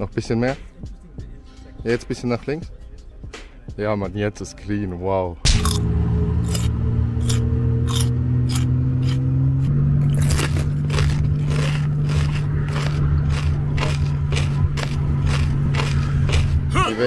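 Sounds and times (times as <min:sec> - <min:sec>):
tuk-tuk engine humming: 0:05.4 - 0:17.0.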